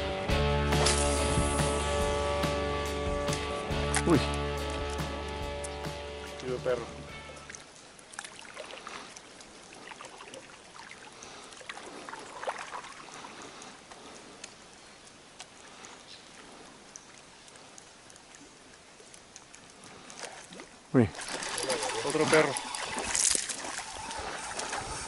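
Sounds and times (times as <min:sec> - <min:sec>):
water lapping against a boat: 0:07.4 - 0:25.0.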